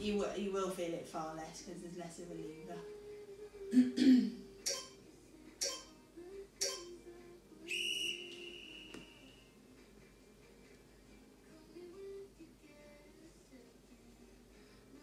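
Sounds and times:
high whistle-like tone: 0:04.7 - 0:05.0, 0:05.6 - 0:05.9, 0:06.6 - 0:07.0, 0:07.7 - 0:09.6.

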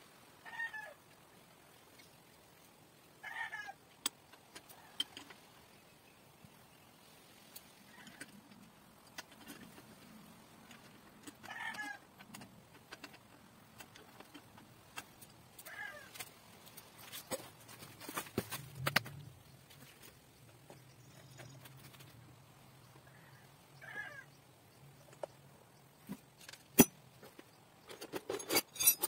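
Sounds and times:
bicycle parts clicking and tapping: 0:04.0 - 0:05.6, 0:07.5 - 0:22.3.

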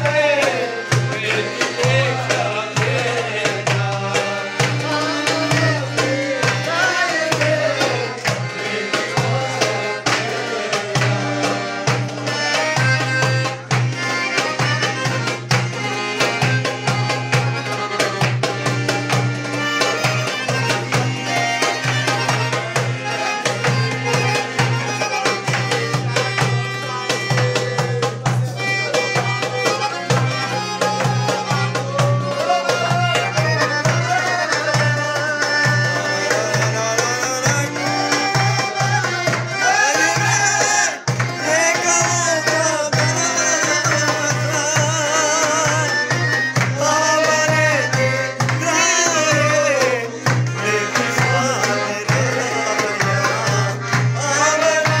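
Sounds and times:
bass: 0:07.4 - 0:40.4.

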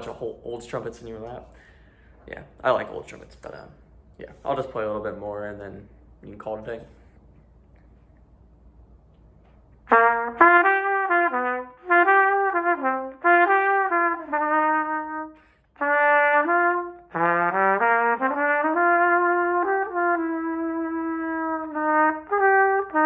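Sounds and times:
player breathing: 0:01.5 - 0:02.2
solo trumpet: 0:09.8 - 0:23.0.

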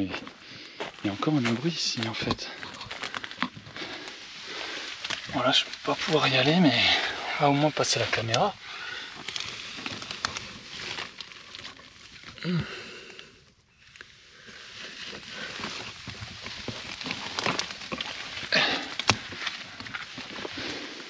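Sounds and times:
rustling of pine needles and twigs: 0:00.0 - 0:21.0.

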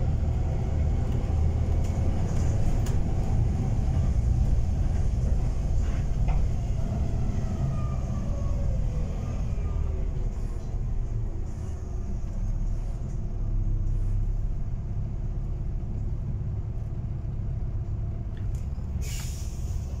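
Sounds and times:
bus engine and road rumble: 0:00.0 - 0:20.0
short hiss: 0:19.0 - 0:19.9.

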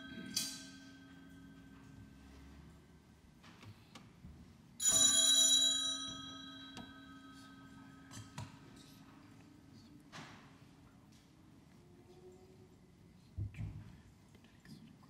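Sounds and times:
altar bell ringing: 0:00.0 - 0:02.2, 0:04.8 - 0:08.3.

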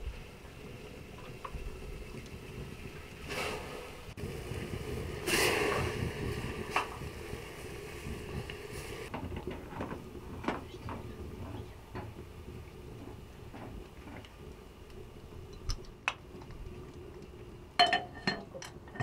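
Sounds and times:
kitchen utensils clicking and knocking: 0:17.8 - 0:19.0.

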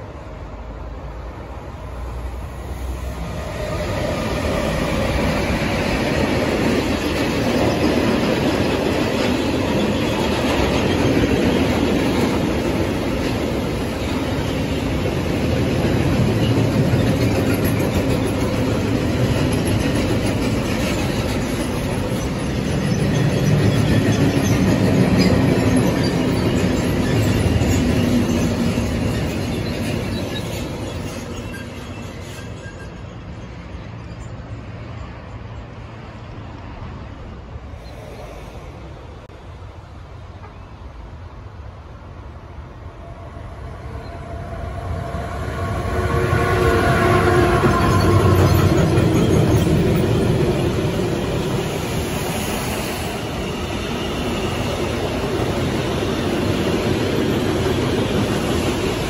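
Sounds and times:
freight train wheels on rails: 0:00.0 - 0:59.0
high wheel squeals: 0:20.9 - 0:34.6, 0:43.8 - 0:59.0.

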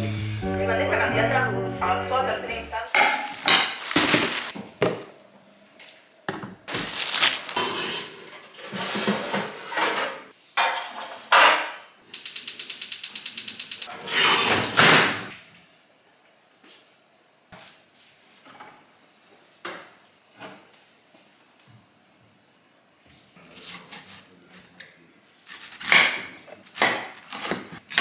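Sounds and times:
metal baking tray scraping and rattling: 0:07.5 - 0:10.2.

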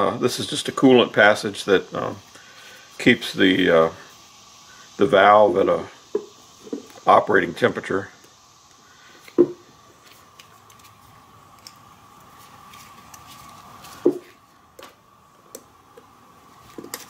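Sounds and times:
faint high hum: 0:00.0 - 0:17.0
handling knocks on wooden bench: 0:09.4 - 0:09.6.

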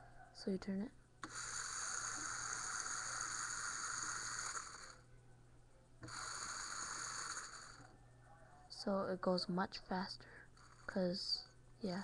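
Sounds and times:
electric motor whirring: 0:01.2 - 0:05.0, 0:06.0 - 0:07.9.

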